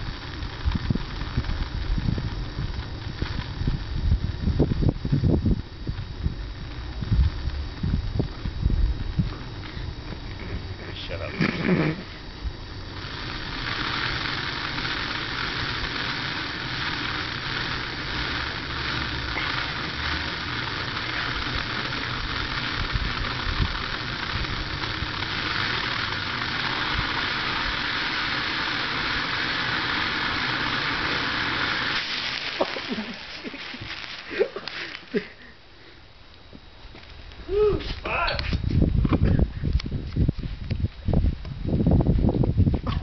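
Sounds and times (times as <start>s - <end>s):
blowtorch hissing: 0.0s - 40.8s.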